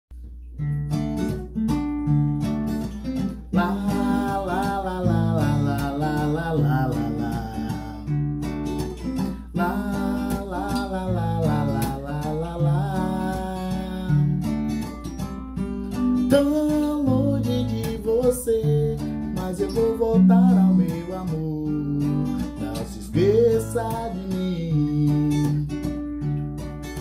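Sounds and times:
acoustic guitar strumming: 0.2 - 27.0
man singing: 3.4 - 8.2, 9.2 - 14.6, 16.2 - 25.8.

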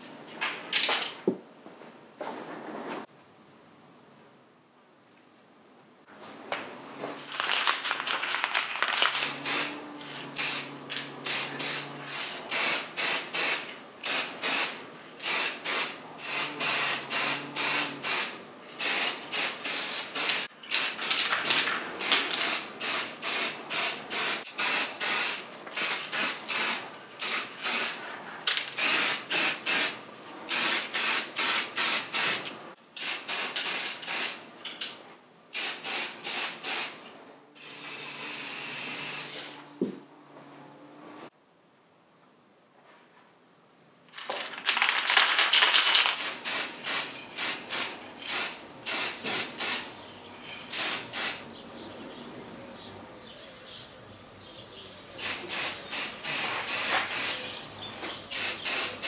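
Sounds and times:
aerosol spray can spraying: 9.0 - 9.8, 11.3 - 28.0, 28.7 - 32.4, 46.1 - 49.9, 55.2 - 57.4, 58.3 - 59.0.

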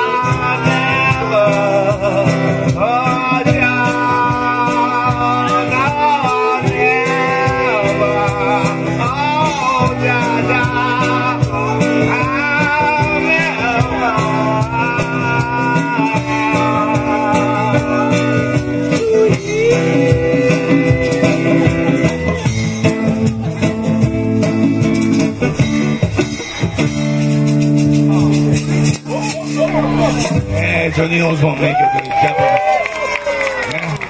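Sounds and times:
hand percussion beat: 0.0 - 31.1
acoustic guitar: 0.0 - 31.6
bass groove: 0.0 - 32.8
harmonica solo: 29.1 - 30.6.

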